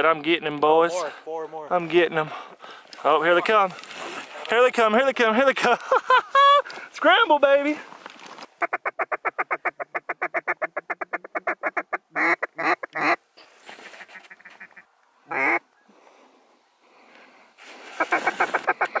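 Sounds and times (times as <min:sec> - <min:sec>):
duck call chuckle: 0:08.6 - 0:13.2, 0:14.2 - 0:15.6, 0:18.0 - 0:19.0
duck call quacks: 0:08.6 - 0:13.2, 0:13.9 - 0:15.6, 0:18.0 - 0:19.0.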